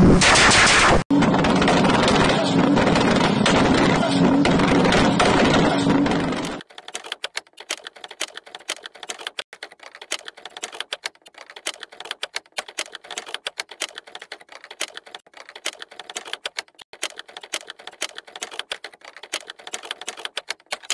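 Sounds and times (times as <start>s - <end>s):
typewriter keys clicking: 4.6s - 20.9s.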